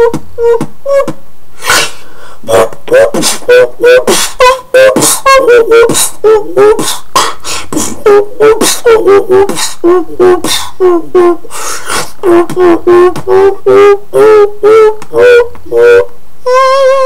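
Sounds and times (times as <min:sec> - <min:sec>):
beatboxing percussion hits: 0:00.0 - 0:10.8, 0:11.5 - 0:14.0.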